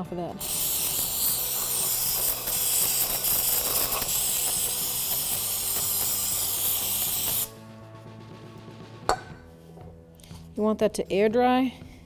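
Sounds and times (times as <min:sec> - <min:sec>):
aerosol spray hissing: 0:00.4 - 0:07.5.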